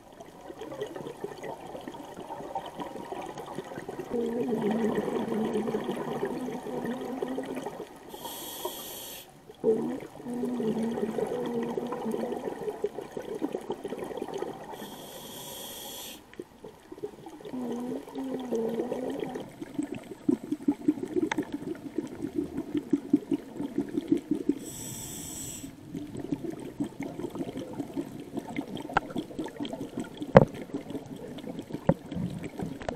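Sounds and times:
exhaled bubbles rumbling: 0.0s - 8.1s, 9.5s - 14.8s, 16.4s - 25.0s, 25.8s - 32.9s
regulator inhalation hisses: 8.1s - 9.4s, 14.8s - 16.3s, 24.6s - 25.8s.

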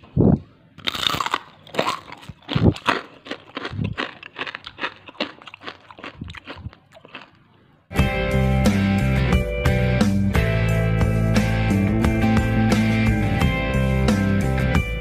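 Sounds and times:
person chewing crispy cracker: 0.8s - 7.9s.

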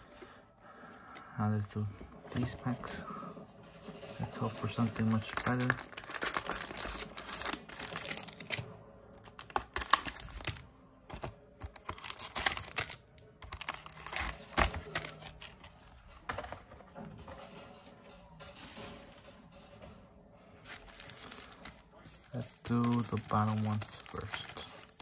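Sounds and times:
foil wrappers crinkling: 4.8s - 8.6s, 9.2s - 10.6s, 11.2s - 15.7s, 20.7s - 25.0s.

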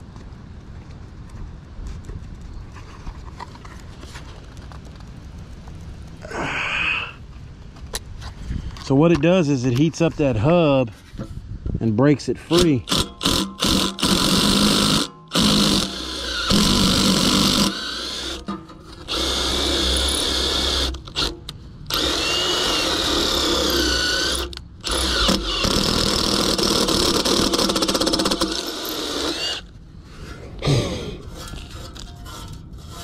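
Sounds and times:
cordless drill whining: 12.9s - 29.7s.

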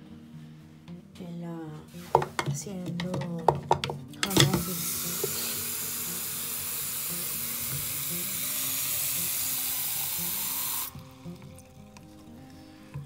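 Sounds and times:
tap water running into a can: 4.2s - 13.0s.

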